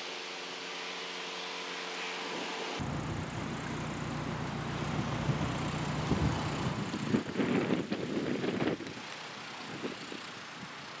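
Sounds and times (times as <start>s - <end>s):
boat diesel engine running: 2.8s - 7.4s.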